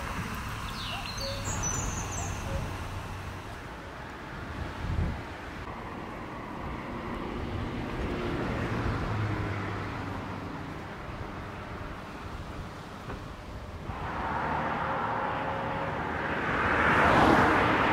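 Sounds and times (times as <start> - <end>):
high chirps: 0.6 - 2.8
low rumble: 13.9 - 17.9.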